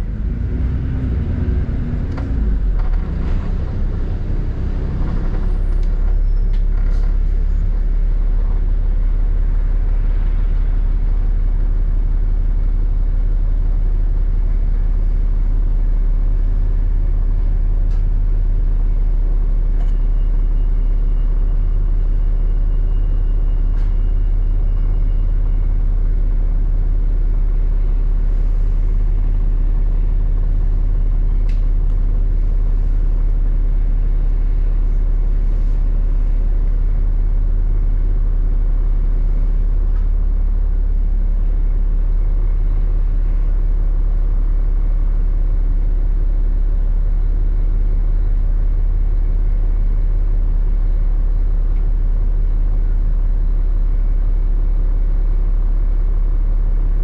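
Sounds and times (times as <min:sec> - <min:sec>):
bus engine rumbling: 0:00.0 - 0:50.3.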